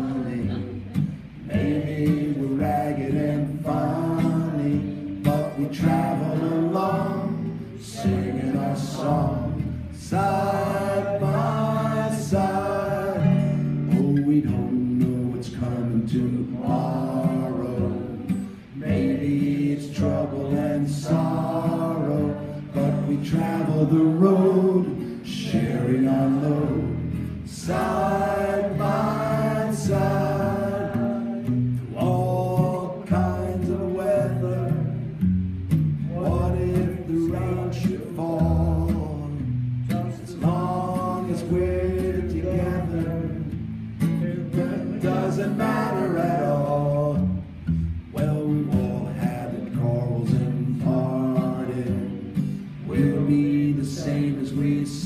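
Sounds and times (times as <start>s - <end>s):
audience singing along: 0.0s - 35.1s, 40.0s - 43.6s, 44.2s - 47.3s, 48.3s - 55.0s
person singing: 0.0s - 35.1s, 48.1s - 55.0s
guitar accompaniment: 0.0s - 55.0s.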